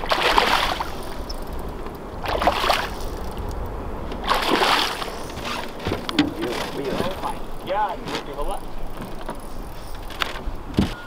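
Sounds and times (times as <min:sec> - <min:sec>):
fish splashing in water: 0:00.0 - 0:01.6, 0:02.2 - 0:03.6, 0:04.2 - 0:07.6.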